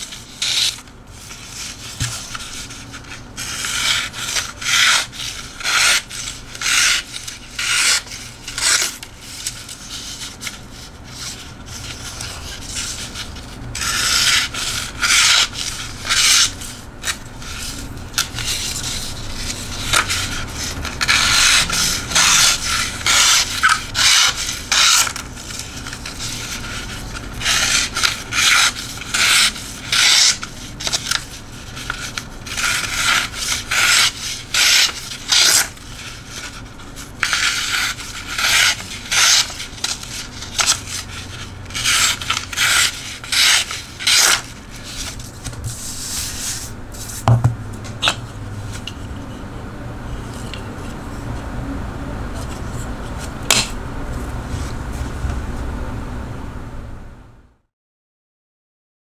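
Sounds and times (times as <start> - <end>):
knife slicing paper: 0.1 - 47.3.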